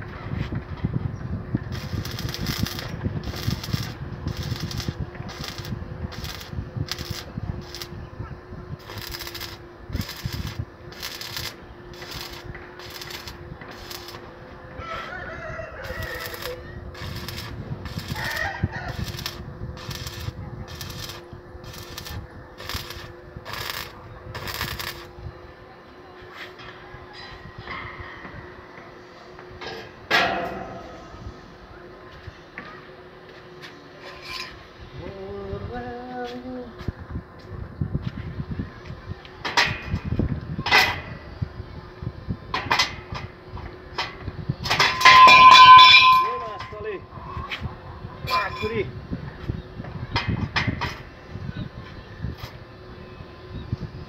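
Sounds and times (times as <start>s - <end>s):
steady electrical hum: 0.0s - 54.0s
welding arc crackling: 1.6s - 8.0s, 8.8s - 14.4s, 15.8s - 25.2s
rooster crowing: 14.7s - 16.8s, 18.1s - 19.3s
steel tubes clanking together: 44.7s - 46.7s.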